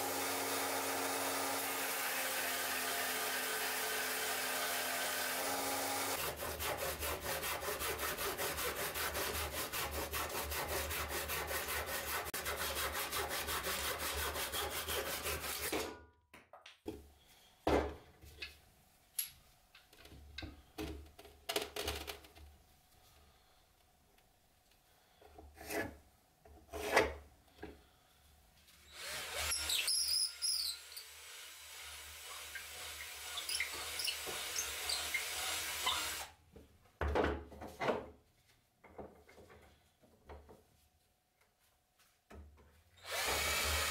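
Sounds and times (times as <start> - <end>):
hand saw cutting wood: 0.0 - 15.9, 25.6 - 26.0, 26.7 - 27.2, 28.9 - 36.4, 43.0 - 43.9
hand drill whining: 28.8 - 36.4, 43.0 - 43.9.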